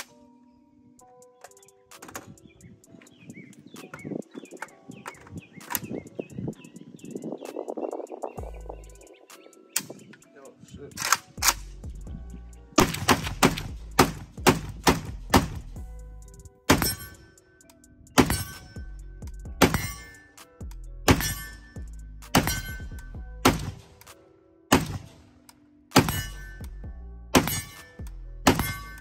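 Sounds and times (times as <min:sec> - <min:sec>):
background music with held tones: 0:00.0 - 0:29.0
pistol gunshots: 0:12.8 - 0:15.7, 0:16.7 - 0:17.2, 0:18.2 - 0:18.8, 0:19.6 - 0:20.3, 0:21.1 - 0:21.6, 0:22.2 - 0:26.6, 0:27.4 - 0:29.0.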